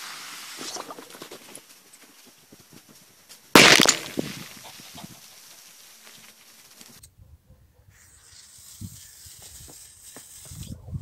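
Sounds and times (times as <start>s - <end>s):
faint crackles: 0.0s - 7.1s
firecracker loud bang: 3.6s - 4.7s.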